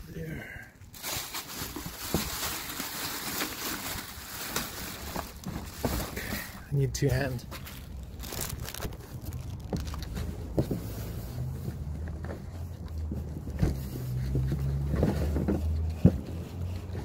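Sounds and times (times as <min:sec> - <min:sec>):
rubbing on plastic packaging: 0:00.9 - 0:06.3
low rumble: 0:07.4 - 0:12.2.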